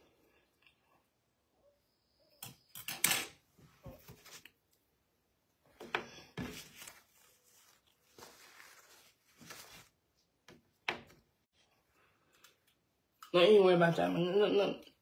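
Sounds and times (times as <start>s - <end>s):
paper rustling: 3.8s - 4.6s, 6.2s - 10.4s.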